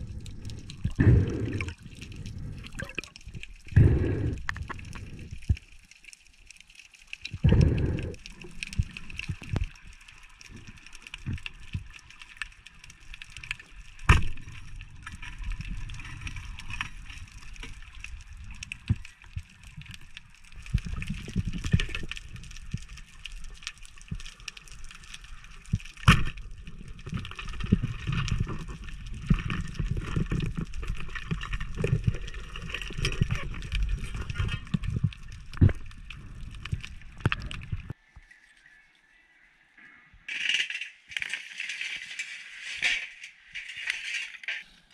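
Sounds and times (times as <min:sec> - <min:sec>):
muffled underwater water rumble: 0:00.0 - 0:05.7, 0:07.2 - 0:12.0, 0:13.6 - 0:38.0
faint crackle: 0:00.0 - 0:44.9.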